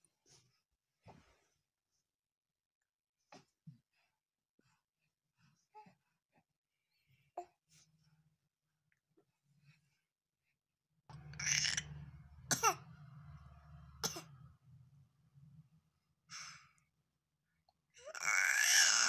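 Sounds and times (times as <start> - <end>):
baby voiced sound: 11.4 - 11.8, 18.0 - 19.0.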